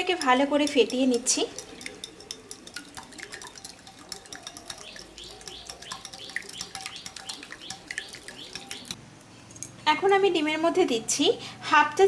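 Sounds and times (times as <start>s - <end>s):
whisk beating in glass bowl: 0.0s - 9.0s.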